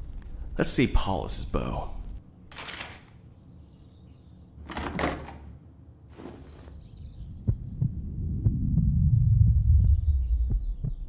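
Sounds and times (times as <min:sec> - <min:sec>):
short rustling bursts: 0:06.1 - 0:06.8
low rumble: 0:06.7 - 0:11.0
heartbeat-like thumps: 0:06.8 - 0:11.0.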